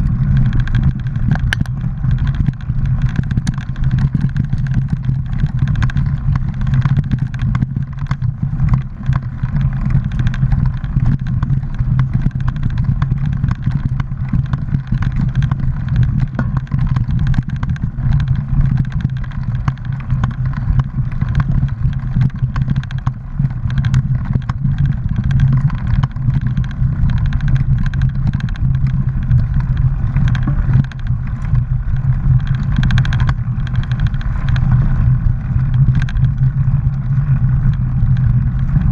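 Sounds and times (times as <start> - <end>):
bike rattling and clicking: 0.0 - 38.9
wind and tyres rumbling: 0.0 - 38.9.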